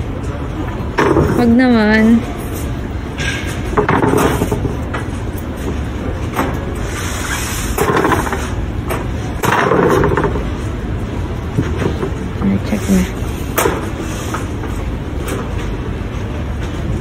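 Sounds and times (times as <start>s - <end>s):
steady low hum: 0.0s - 17.0s
wooden boards bumping on metal cart: 1.0s - 1.6s, 3.2s - 5.0s, 7.7s - 10.5s.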